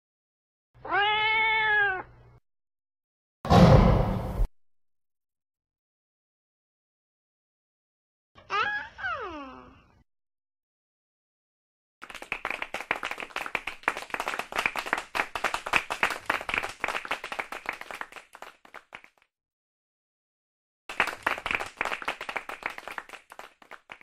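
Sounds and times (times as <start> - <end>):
crowd applauding: 12.0 - 19.2, 20.9 - 24.0.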